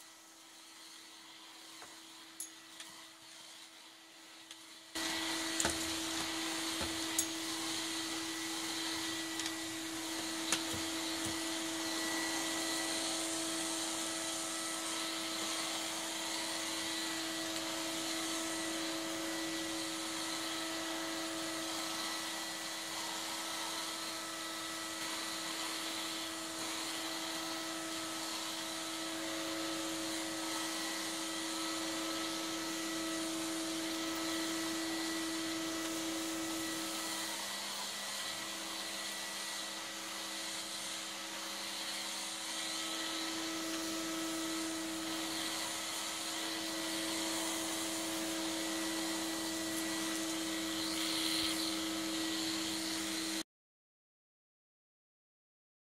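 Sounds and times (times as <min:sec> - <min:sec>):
vacuum cleaner running: 0:00.0 - 0:53.4
debris clicking in vacuum wand: 0:05.5 - 0:07.4.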